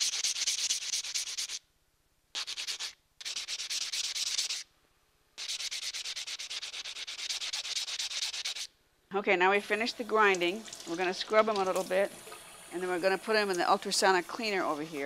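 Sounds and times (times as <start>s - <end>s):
diamond pad rubbing on enamel: 0.0s - 1.6s, 2.3s - 4.7s, 5.4s - 8.7s.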